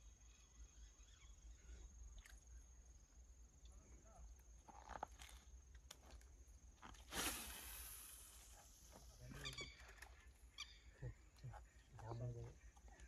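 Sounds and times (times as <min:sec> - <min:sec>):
fishing line hissing out: 0:06.9 - 0:10.0.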